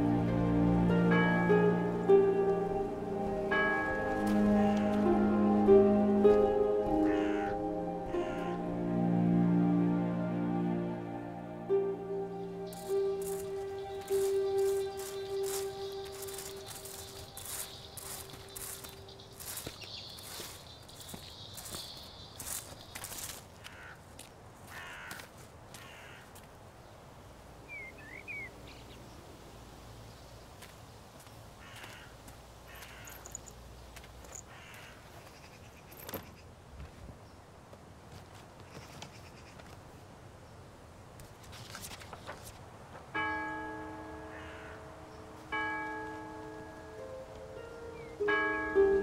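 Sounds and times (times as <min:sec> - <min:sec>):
rising bird chirps: 0:12.2 - 0:23.2, 0:27.7 - 0:29.0
harsh bird calls: 0:12.7 - 0:24.0
bell striking: 0:43.2 - 0:49.0.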